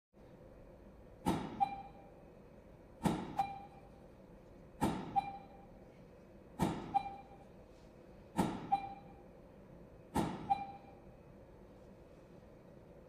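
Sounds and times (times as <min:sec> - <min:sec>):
short camera beep: 0:01.5 - 0:02.1, 0:03.3 - 0:03.9, 0:05.0 - 0:05.7, 0:06.8 - 0:07.5, 0:08.6 - 0:09.2, 0:10.3 - 0:11.1.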